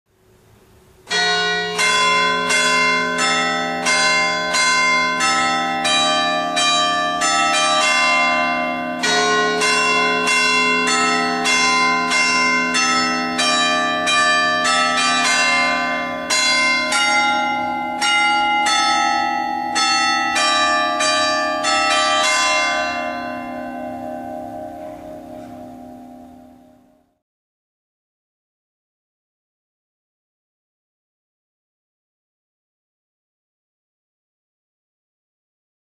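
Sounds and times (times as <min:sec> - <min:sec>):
church bells pealing: 0:01.0 - 0:27.2.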